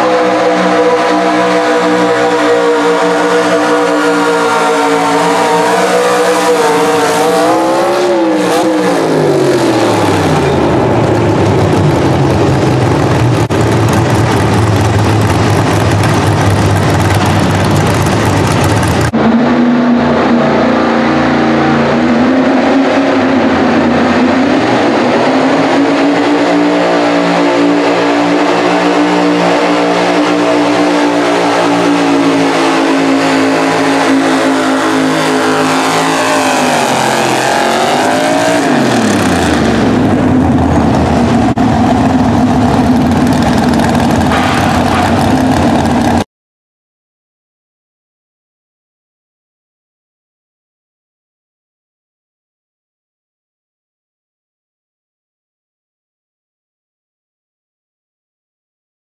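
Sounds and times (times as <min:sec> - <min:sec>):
truck engine at full throttle: 0:00.0 - 0:46.2.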